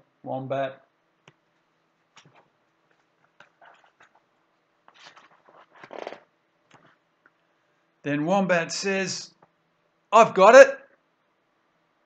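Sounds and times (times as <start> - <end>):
book page turning: 3.2 - 4.3, 4.9 - 6.9.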